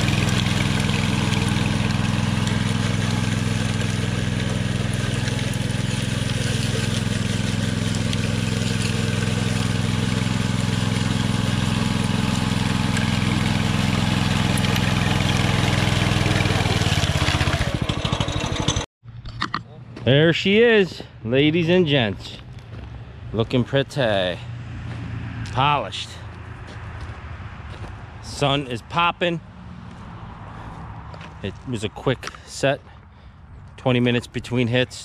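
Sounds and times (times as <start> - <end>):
power trowel engine running: 0.0 - 18.9.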